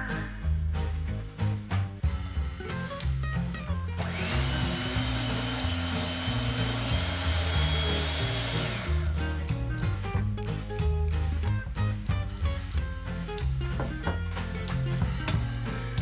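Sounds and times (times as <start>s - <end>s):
background music: 0.0s - 16.0s
electric hand mixer whining: 4.0s - 9.4s.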